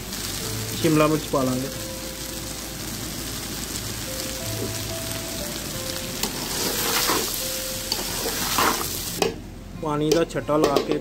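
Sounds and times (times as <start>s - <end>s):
food sizzling in a pot: 0.0s - 9.5s
spatula scraping a steel pot: 6.2s - 8.9s.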